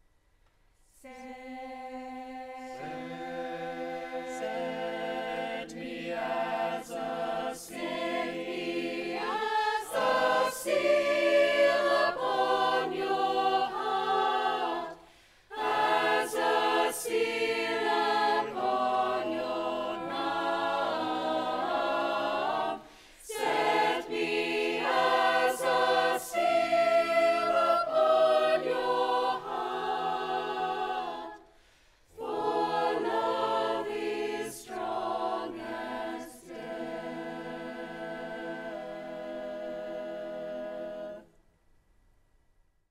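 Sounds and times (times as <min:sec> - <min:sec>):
choir singing: 0:00.9 - 0:41.4.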